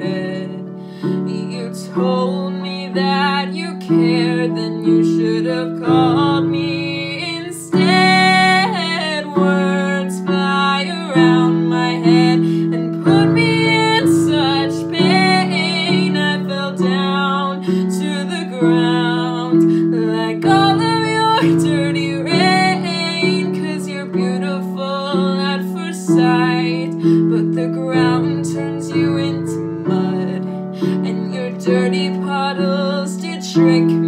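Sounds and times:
woman singing: 0.0 - 34.0.

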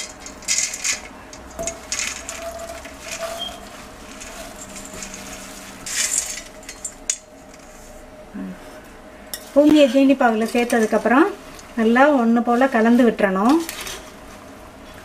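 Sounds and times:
steel bowl scraping: 0.0 - 6.8.

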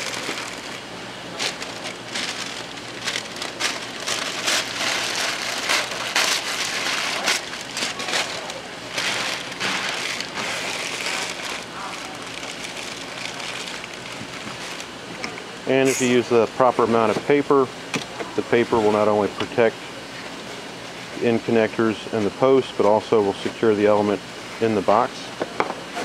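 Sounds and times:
paper crumpling and rustling: 0.0 - 14.9.

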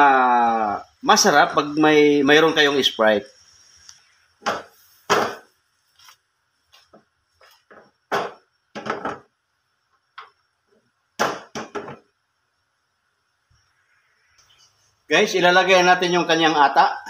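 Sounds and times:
wok knocks and clatter: 4.4 - 5.5, 7.7 - 9.3, 11.2 - 12.1.

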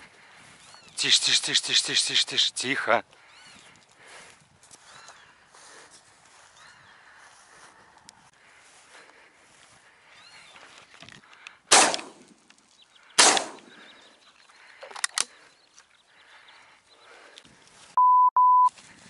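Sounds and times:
shotgun shots: 11.7 - 12.3, 13.2 - 13.7
loud electronic beep: 18.0 - 18.7.

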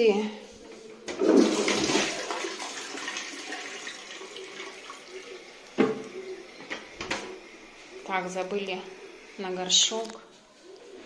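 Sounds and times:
toilet flushing: 1.0 - 7.6.

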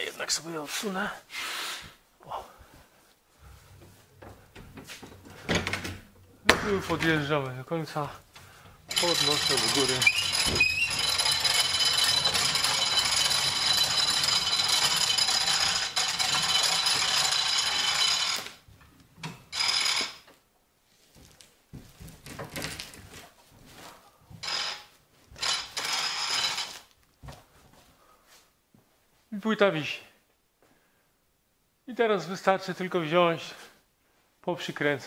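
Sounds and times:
hand winch ratchet clicking: 8.9 - 18.5.

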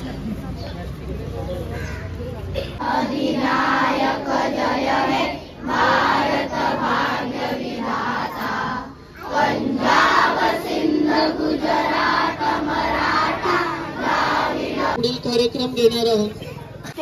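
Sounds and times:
group singing in unison: 2.8 - 15.0.

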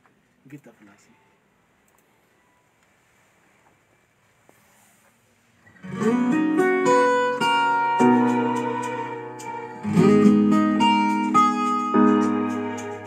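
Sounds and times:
acoustic guitar song: 5.6 - 13.0.

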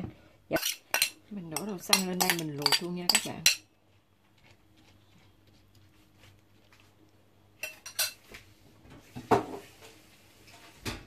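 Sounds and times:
metal spoon scraping a pan: 0.5 - 3.6.

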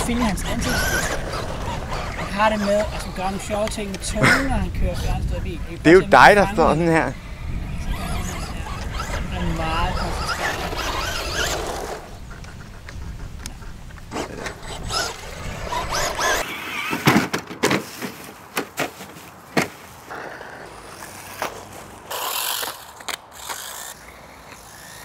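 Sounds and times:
toy cars crashing on dirt: 0.0 - 4.1, 7.9 - 12.1, 14.1 - 24.0
scrabbling noise: 0.0 - 5.4, 6.2 - 24.0.

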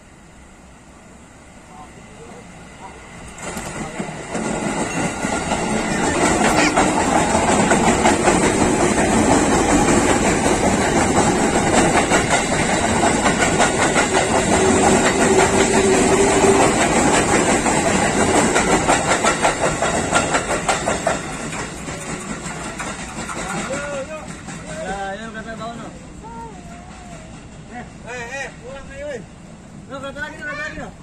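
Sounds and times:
train wheels clattering on rail joints: 3.2 - 25.8.

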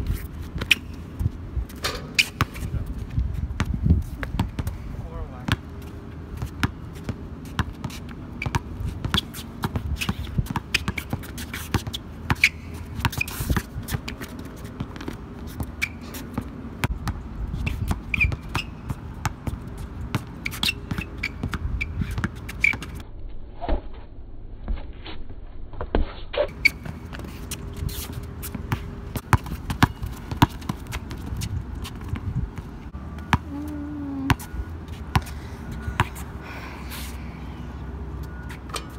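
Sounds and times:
basketball dribbling on court: 3.6 - 4.8, 6.4 - 23.0, 26.5 - 36.3.

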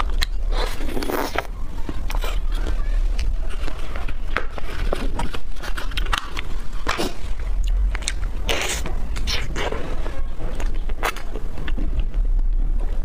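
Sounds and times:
biting into ice cream bar: 0.0 - 2.6
steady low hum: 0.0 - 13.0
wet chewing mouth sounds: 0.0 - 13.0.

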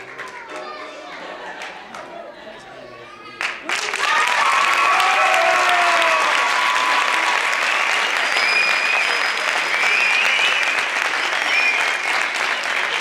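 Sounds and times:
audience applauding: 0.0 - 2.1, 3.4 - 13.0
shouted cheers: 3.4 - 13.0.

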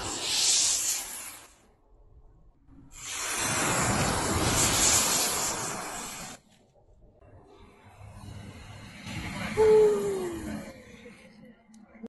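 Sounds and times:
pyrotechnic composition burning hiss: 0.0 - 6.6.

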